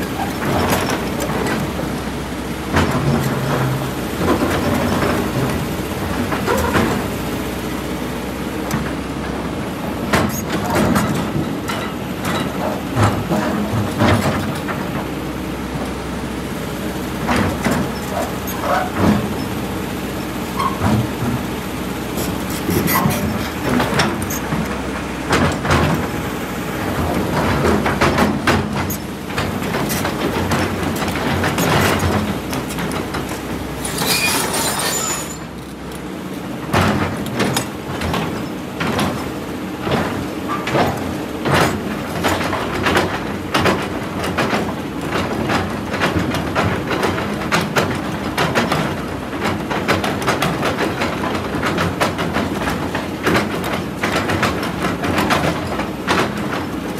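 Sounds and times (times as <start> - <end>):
diesel engine under load: 0.0 - 56.9
steel bucket scraping rock: 29.8 - 35.6.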